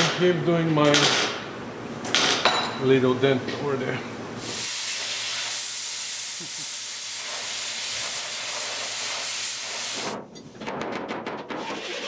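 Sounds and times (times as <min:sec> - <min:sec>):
welder arc hissing: 0:04.4 - 0:10.2.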